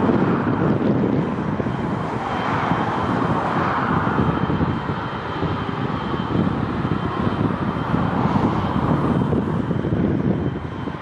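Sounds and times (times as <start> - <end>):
high-pitched engine whine: 0.0 - 11.0
jet engine roar: 0.0 - 11.0.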